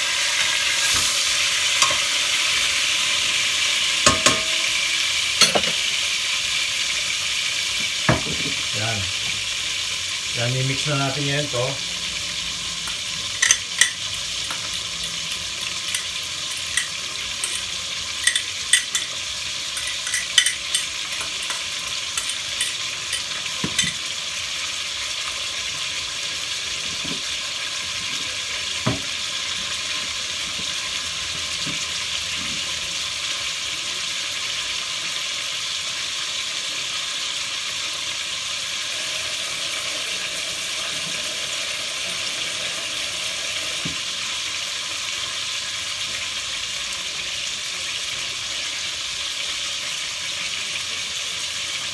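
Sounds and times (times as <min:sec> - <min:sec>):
sizzling hiss from pot: 0:00.0 - 0:51.9
spoon clicking and scraping in bowl: 0:13.4 - 0:19.1, 0:19.8 - 0:24.0.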